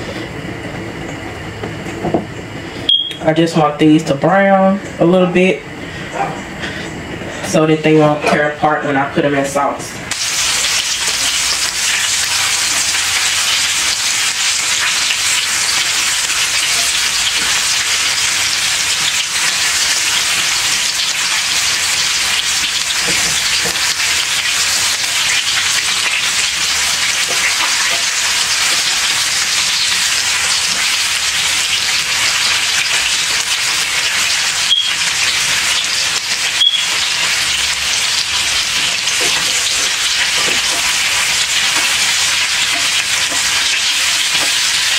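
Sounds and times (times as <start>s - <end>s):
meatballs sizzling in a skillet: 10.1s - 44.9s.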